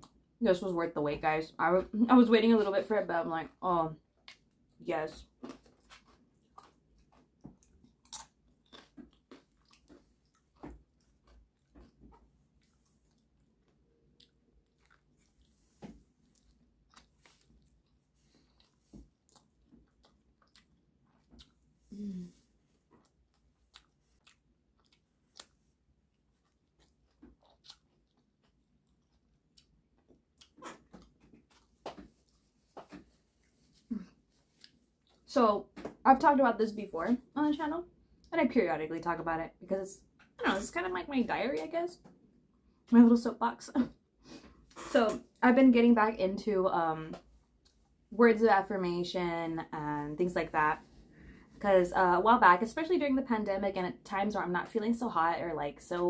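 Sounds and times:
person chewing food: 4.2s - 35.2s.

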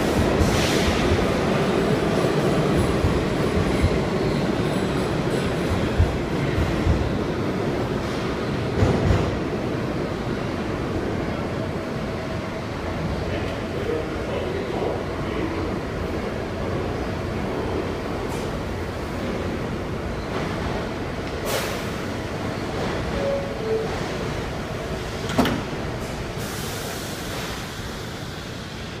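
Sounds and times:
subway car rumble: 0.0s - 29.0s
air hiss: 21.4s - 22.2s, 26.4s - 28.9s
sliding doors closing thud: 25.1s - 26.2s.

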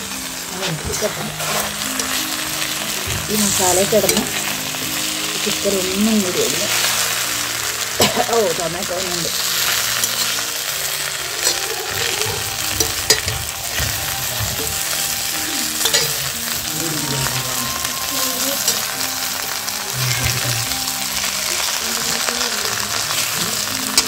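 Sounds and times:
chicken sizzling in a pan: 0.0s - 24.0s
metal spatula scraping pan: 0.6s - 4.5s.

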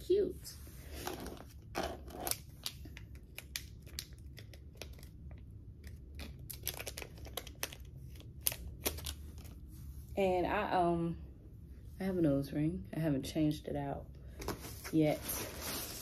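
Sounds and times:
packaging crinkling: 1.0s - 9.7s.

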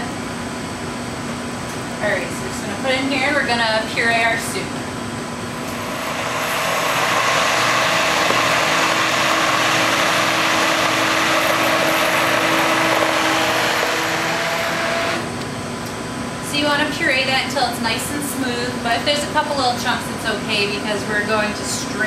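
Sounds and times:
immersion blender running: 5.6s - 15.3s.

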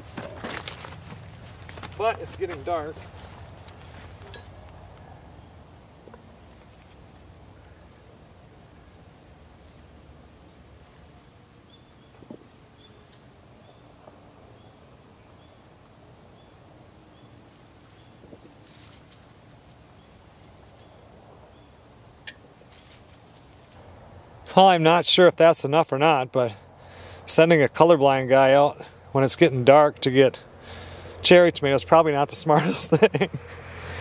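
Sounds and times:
snaps and rustles of picking tomatoes: 0.0s - 5.1s, 12.2s - 13.3s, 17.8s - 21.0s, 22.2s - 23.8s.

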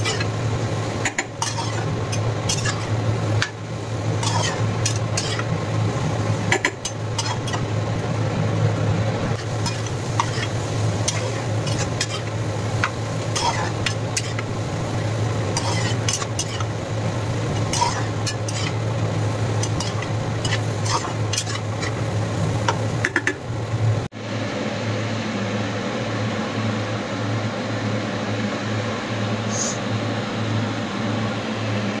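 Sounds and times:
metal spatula scraping frying pan: 0.0s - 0.3s, 1.1s - 3.5s, 4.2s - 5.6s, 9.4s - 14.5s, 15.5s - 16.7s, 17.5s - 18.8s, 19.6s - 22.0s
food sizzling: 0.0s - 24.1s
steady low hum: 0.0s - 32.0s.

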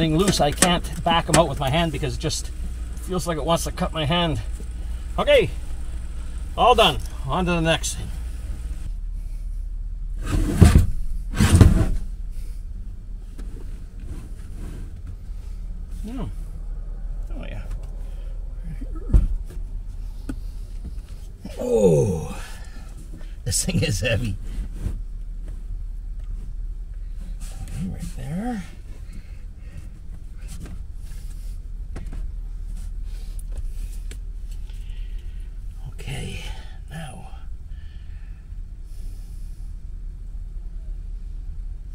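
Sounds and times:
steady low rumble: 0.0s - 41.9s.

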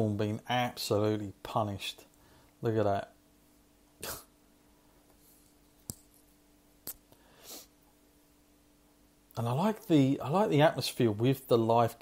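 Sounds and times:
faint steady hum: 0.0s - 12.0s
short breaths: 2.2s - 2.6s, 7.1s - 7.8s.

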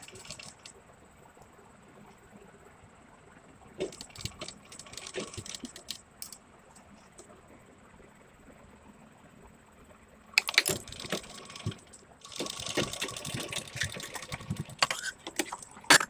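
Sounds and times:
sewing machine running: 0.0s - 0.6s, 4.0s - 5.9s, 10.4s - 15.0s
sharp clicks: 10.4s - 11.2s.

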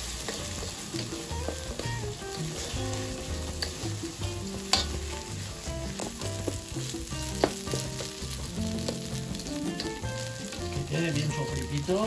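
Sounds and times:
rice sizzling in a pan: 0.0s - 12.0s
spatula knocking on pan: 3.2s - 10.0s
spatula scraping a pan: 4.6s - 6.2s.

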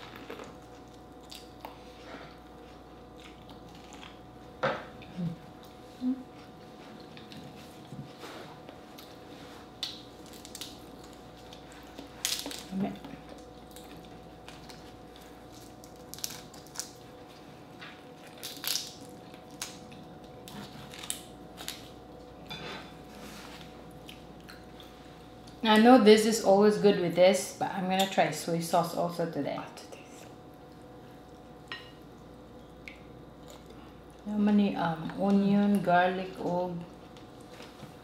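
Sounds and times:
shellfish shells cracking: 9.8s - 14.8s, 15.5s - 17.0s, 18.3s - 20.0s.

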